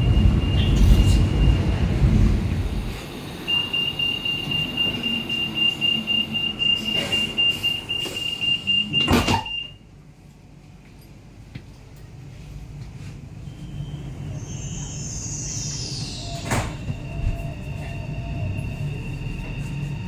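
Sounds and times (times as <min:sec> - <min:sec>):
high-pitched warning tone: 0:03.4 - 0:09.7
train door thumping shut: 0:09.0 - 0:09.6, 0:16.4 - 0:17.4.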